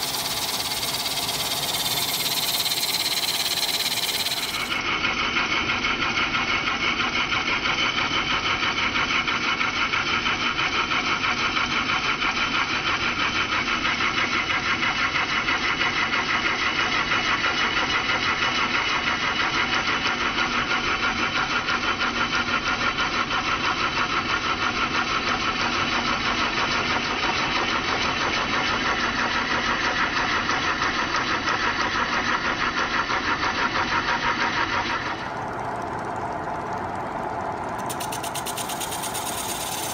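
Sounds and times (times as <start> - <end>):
turning tool cutting wood: 0.0 - 4.8, 33.8 - 39.9
wood lathe spinning: 0.0 - 4.8, 24.2 - 39.9.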